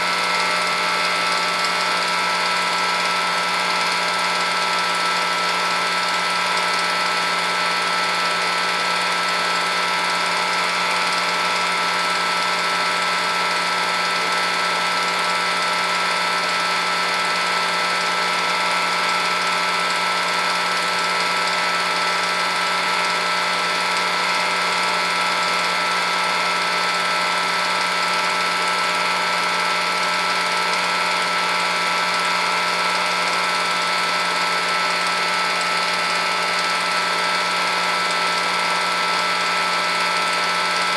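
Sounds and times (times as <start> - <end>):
film projector whirring: 0.0 - 40.9.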